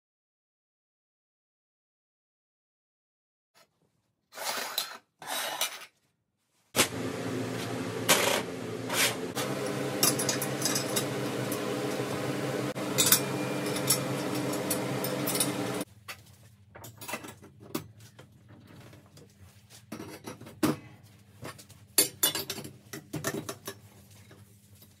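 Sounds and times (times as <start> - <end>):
steady hum: 6.8 - 15.8.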